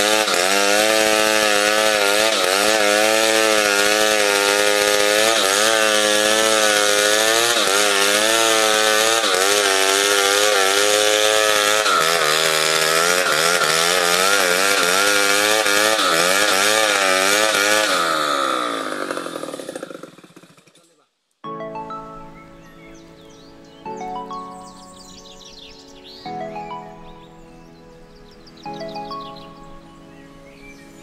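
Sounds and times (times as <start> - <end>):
chainsaw cutting log: 0.0 - 21.0.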